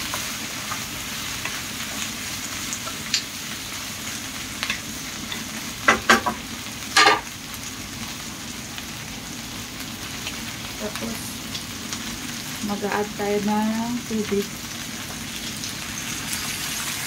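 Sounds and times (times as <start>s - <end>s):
vegetables sizzling in hot oil: 0.0s - 17.0s.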